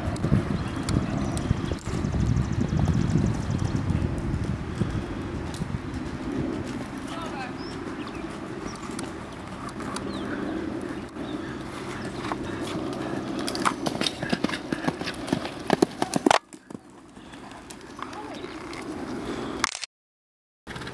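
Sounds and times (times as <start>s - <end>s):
steady low rumble: 0.0s - 16.0s
horse hoofbeats on sand: 0.0s - 18.9s.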